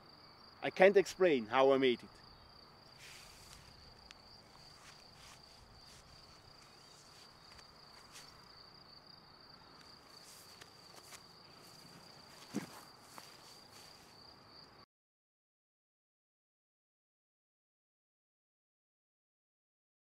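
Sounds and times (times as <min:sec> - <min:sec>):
crickets chirring: 0:00.0 - 0:14.8
footsteps in grass: 0:02.9 - 0:08.5, 0:09.8 - 0:14.2
thump: 0:12.5 - 0:12.8.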